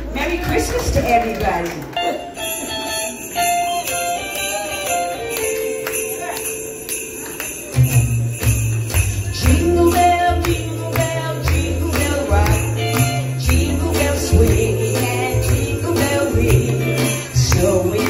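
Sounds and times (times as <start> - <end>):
sleigh bells shaken: 2.3 - 18.0
bass line: 7.8 - 18.0.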